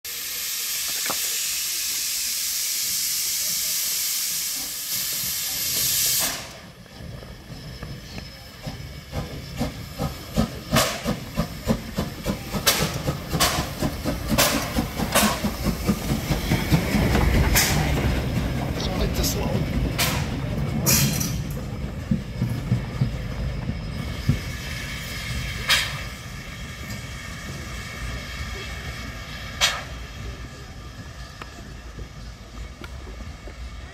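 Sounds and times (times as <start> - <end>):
steam locomotive hissing: 0.1 - 33.9
locomotive exhaust chuffs: 0.2 - 33.8
locomotive rumble: 0.2 - 33.9.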